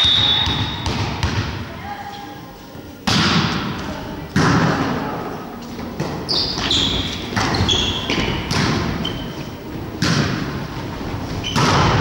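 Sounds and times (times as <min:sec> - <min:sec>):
shoes squeaking on gym floor: 0:05.6 - 0:09.8, 0:11.2 - 0:12.0
volleyball being hit: 0:08.2 - 0:08.9, 0:10.0 - 0:10.6, 0:11.5 - 0:12.0.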